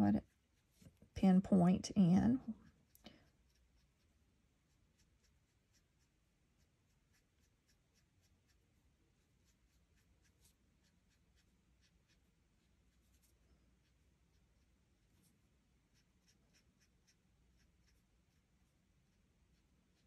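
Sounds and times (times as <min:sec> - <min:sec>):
marker scratching on cardstock: 0:03.3 - 0:08.6, 0:15.9 - 0:18.5.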